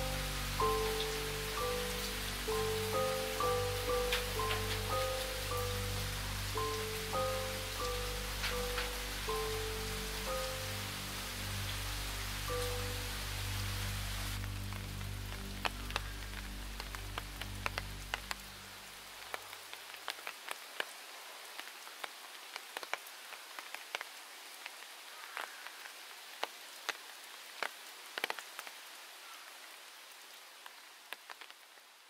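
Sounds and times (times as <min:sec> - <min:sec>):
rain hiss in forest: 0:00.0 - 0:32.0
single raindrops landing: 0:06.6 - 0:10.6, 0:14.4 - 0:18.5.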